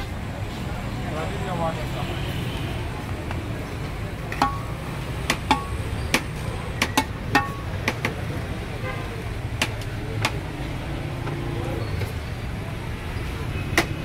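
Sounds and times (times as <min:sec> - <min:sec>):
low street rumble: 0:00.0 - 0:14.0.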